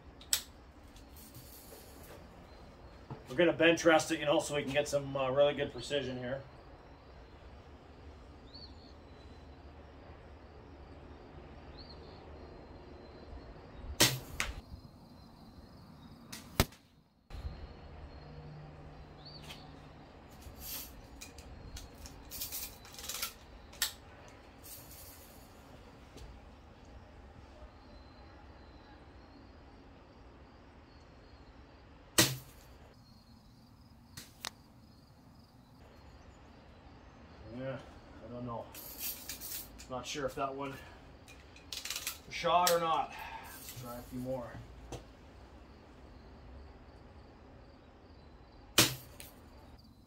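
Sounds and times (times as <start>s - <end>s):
bb gun shots snapping: 14.0s - 14.6s, 16.3s - 16.8s.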